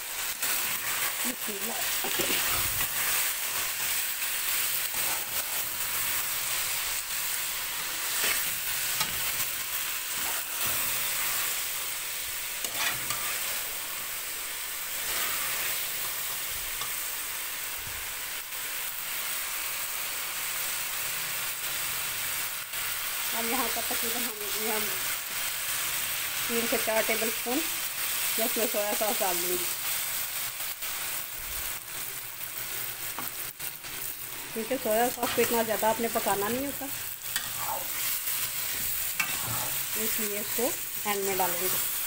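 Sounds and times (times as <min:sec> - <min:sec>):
food sizzling in a pot: 0:00.0 - 0:42.0
spatula scraping a pot: 0:12.6 - 0:13.5, 0:37.3 - 0:39.9.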